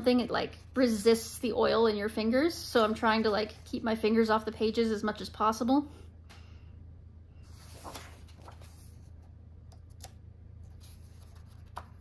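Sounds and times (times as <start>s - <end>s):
page turning swish: 7.4s - 9.1s.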